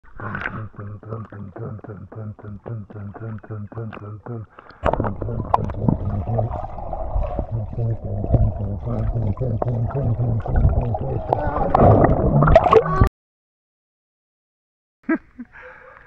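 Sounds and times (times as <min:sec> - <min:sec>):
pool water sloshing and splashing: 0:04.9 - 0:12.8.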